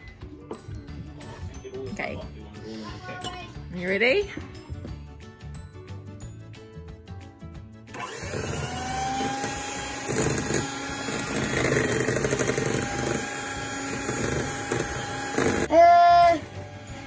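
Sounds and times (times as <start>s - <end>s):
electric hand mixer whirring: 7.9s - 17.0s.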